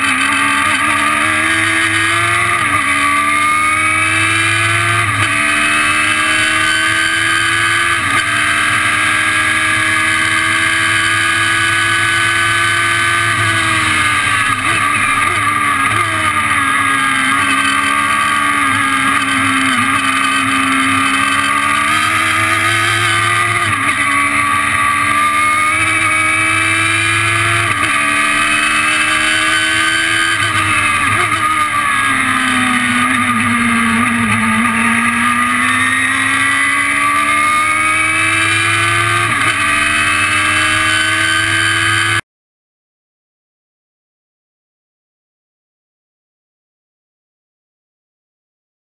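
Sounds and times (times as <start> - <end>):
race car engine at full throttle: 0.0 - 42.2
wind and road noise: 0.0 - 42.2.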